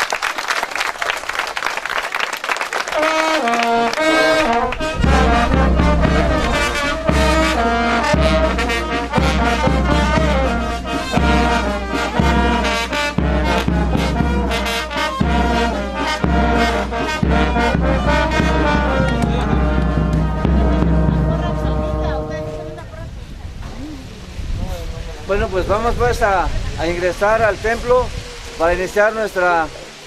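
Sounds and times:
brass band playing: 2.8s - 23.1s.

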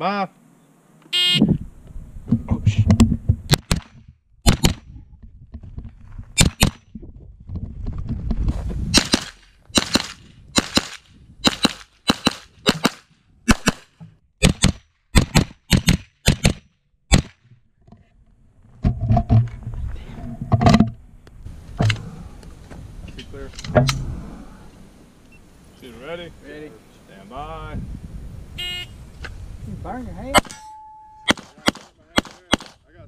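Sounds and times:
gunshots: 3.5s - 4.9s, 9.0s - 17.4s, 31.3s - 32.8s.

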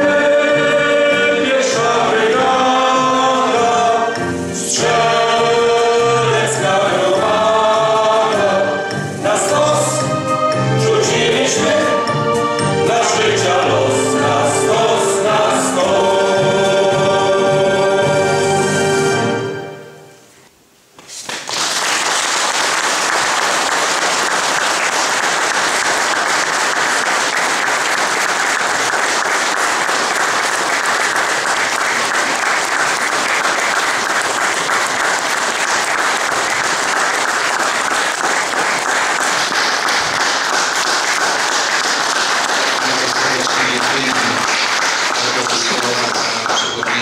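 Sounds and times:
men's choir singing chord: 0.0s - 18.8s
audience applause: 21.2s - 47.0s.

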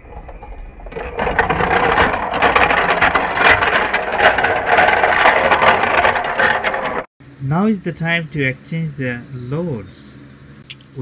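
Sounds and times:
toy train clattering on plastic track: 0.9s - 7.1s.

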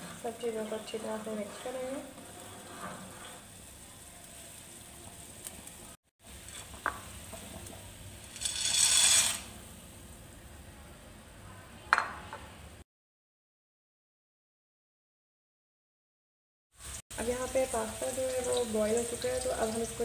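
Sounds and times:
dry pasta pouring into pot: 8.2s - 9.6s
dish clinking against pot: 11.9s - 12.2s.

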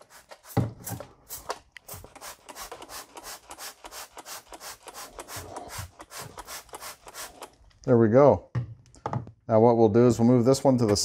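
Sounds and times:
spray bottle squirting: 0.0s - 7.6s.

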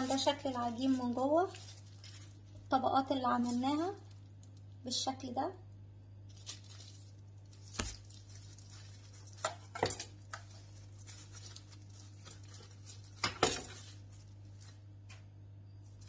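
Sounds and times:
dough set into plastic bowl: 6.3s - 15.3s.

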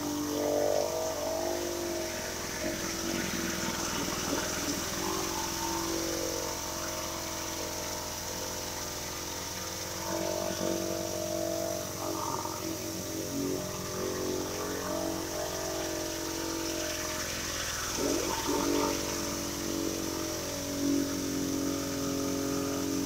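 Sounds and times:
pressure washer droning: 0.0s - 23.0s
water spraying on wooden boards: 0.0s - 23.0s.

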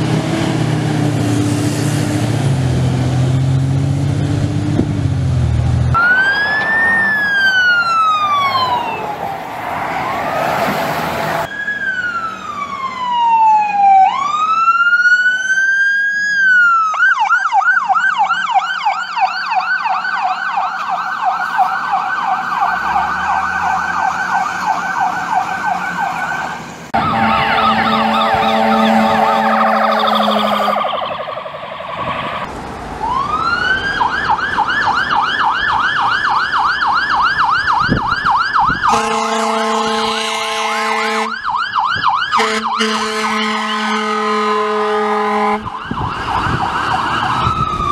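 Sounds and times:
siren wailing and yelping: 6.0s - 39.2s, 41.2s - 43.3s, 45.6s - 47.9s
low air horn blast: 27.0s - 31.0s, 38.9s - 41.4s, 42.4s - 45.7s.

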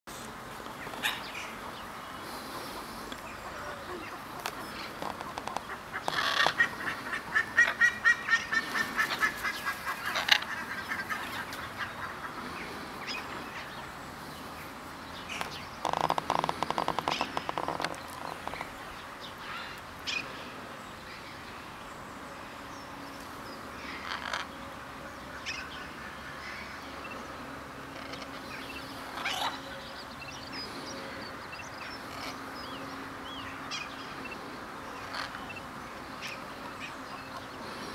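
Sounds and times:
macaws calling: 0.7s - 13.9s, 15.2s - 20.5s, 23.8s - 24.6s, 27.8s - 37.9s.

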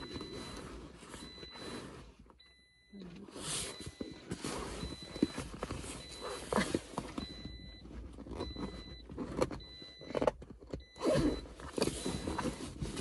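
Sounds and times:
faint high beep: 0.0s - 9.0s
seat cover rustling and rubbing: 3.3s - 9.6s, 11.0s - 13.0s.

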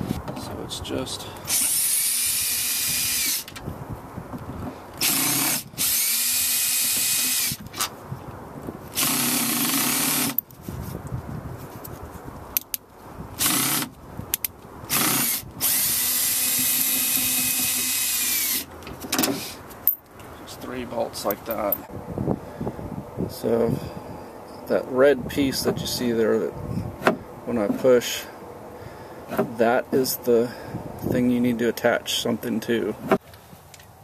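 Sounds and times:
cordless drill whirring: 1.5s - 3.6s, 5.0s - 7.6s, 9.0s - 10.4s, 14.9s - 19.6s.

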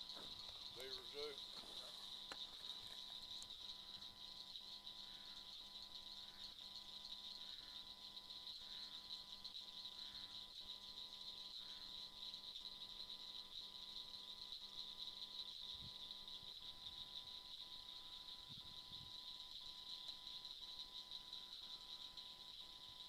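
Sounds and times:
insects or frogs calling: 0.0s - 23.0s
soft ticks: 0.1s - 3.6s.

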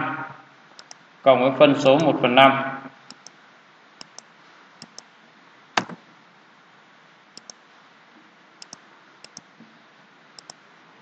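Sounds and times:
computer mouse clicking: 0.8s - 1.0s, 3.1s - 3.4s, 4.0s - 5.1s, 7.4s - 7.6s, 8.6s - 9.5s, 10.4s - 10.6s.

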